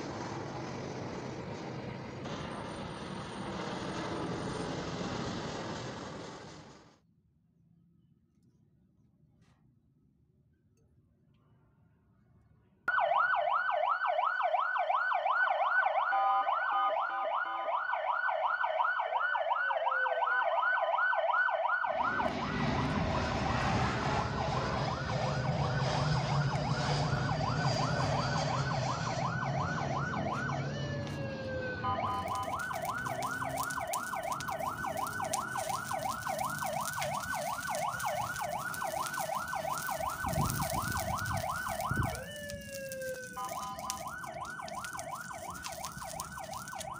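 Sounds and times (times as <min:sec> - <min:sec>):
toy siren warbling: 0:12.9 - 0:22.5, 0:26.5 - 0:46.9
rushing whirring noise: 0:22.0 - 0:46.9.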